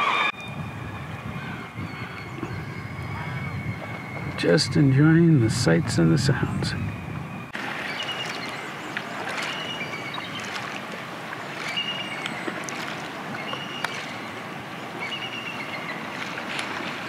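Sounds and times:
waterfall and stream rushing: 0:07.5 - 0:17.0
fish jumping splashes: 0:07.6 - 0:17.0
high eagle calls: 0:07.8 - 0:10.6, 0:11.6 - 0:12.6, 0:13.3 - 0:16.2.

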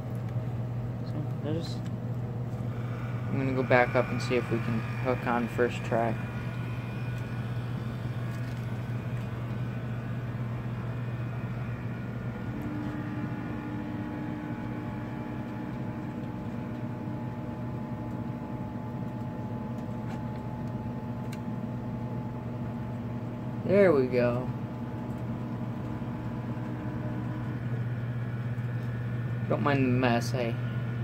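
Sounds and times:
model train motor whirring: 0:02.6 - 0:17.1
higher tone: 0:02.7 - 0:18.6.

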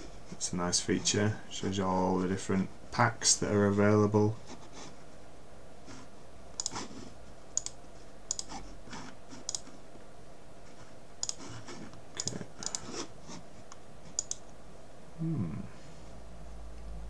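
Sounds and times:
computer mouse clicking: 0:06.6 - 0:07.0, 0:07.6 - 0:08.6, 0:09.4 - 0:09.8, 0:11.2 - 0:13.0, 0:13.7 - 0:14.5.

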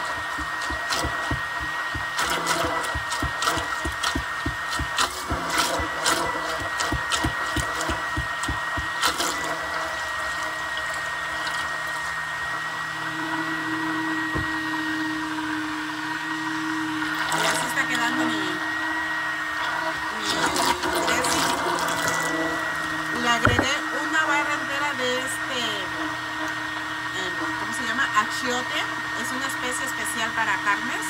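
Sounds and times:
low steady hum: 0:00.0 - 0:12.0
immersion blender motor whine: 0:00.0 - 0:31.0.

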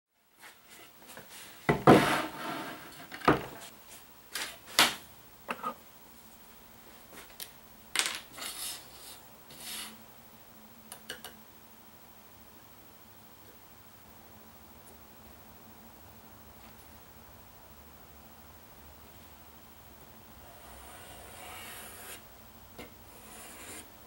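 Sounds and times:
objects knocking on a workbench: 0:01.7 - 0:02.2, 0:03.1 - 0:03.6.

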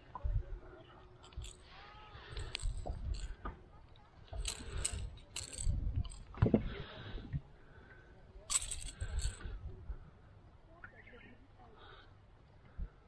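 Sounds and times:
clicks and rattles of fish unhooking: 0:02.3 - 0:06.5, 0:08.5 - 0:09.5.

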